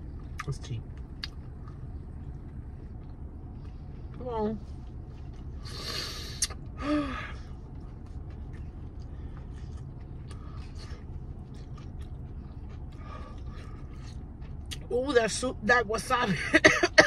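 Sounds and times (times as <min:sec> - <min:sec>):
steady low hum: 0:00.0 - 0:17.0
person chewing with wet mouth clicks: 0:00.2 - 0:03.8, 0:06.4 - 0:06.6, 0:08.1 - 0:14.9.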